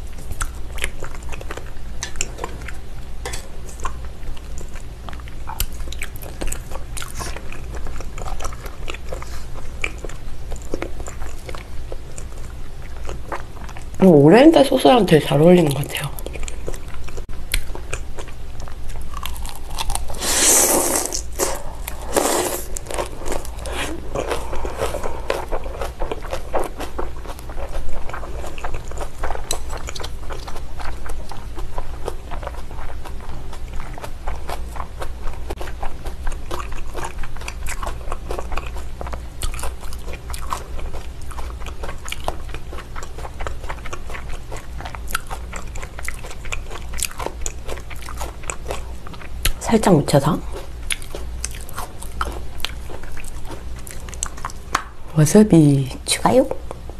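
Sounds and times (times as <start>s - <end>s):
wet chewing: 0.0s - 55.0s
crunching of salad leaves: 18.9s - 33.0s.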